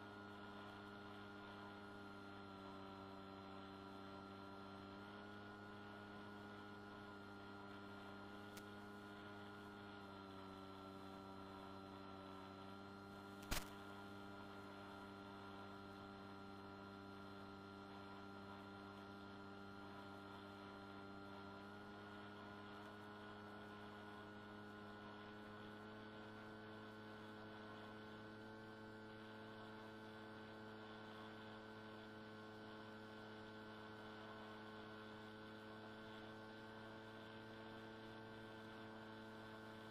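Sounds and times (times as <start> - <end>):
electric motor and propeller hum: 0.0 - 39.9
sharp click: 13.4 - 13.8.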